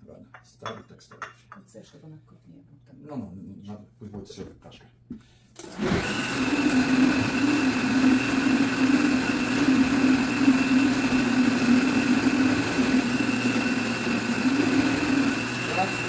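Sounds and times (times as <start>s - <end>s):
blender motor whirring: 5.6s - 16.0s.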